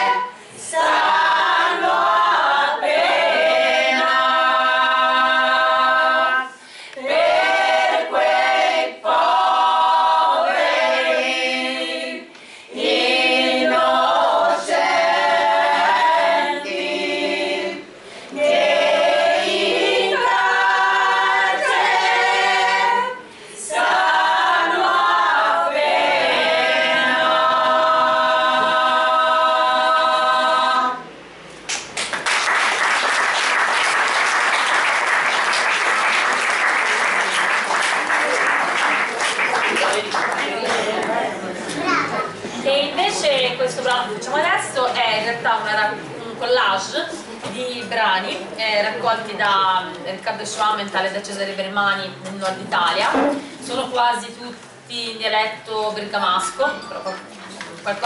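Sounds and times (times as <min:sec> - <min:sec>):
women's choir singing a cappella: 0:00.0 - 0:31.4.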